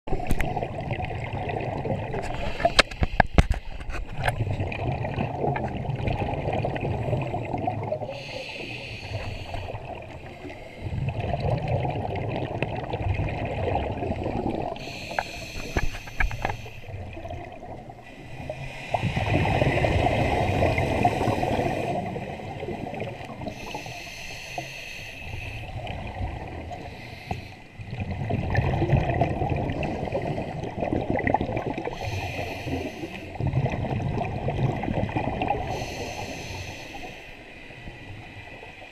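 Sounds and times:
low bubbling of exhaled air: 0.1 - 23.8, 27.8 - 37.1
regulator inhale hiss: 2.3 - 3.8, 8.0 - 11.0, 14.8 - 17.0, 18.0 - 19.6, 20.8 - 22.2, 23.4 - 25.8, 26.8 - 27.8, 31.9 - 33.4, 35.6 - 38.1.

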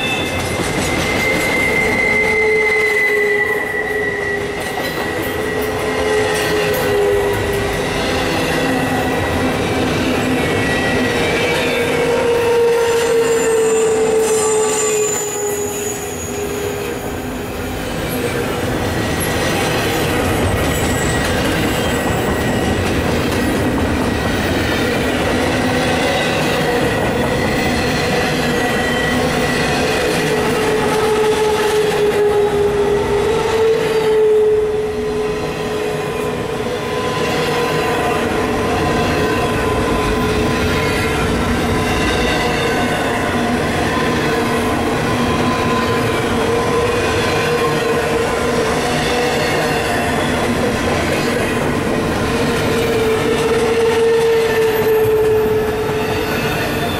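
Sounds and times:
wheels squealing: 0.0 - 8.1, 10.4 - 17.2, 18.9 - 23.5
train wheels rumbling on rail: 0.0 - 56.9.

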